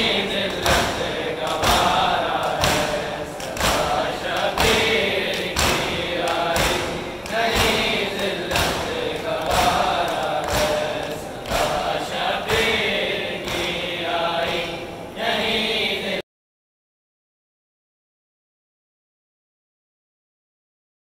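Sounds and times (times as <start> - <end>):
rhythmic chest beating thumps: 0.0 - 16.0
crowd chanting: 0.0 - 16.2.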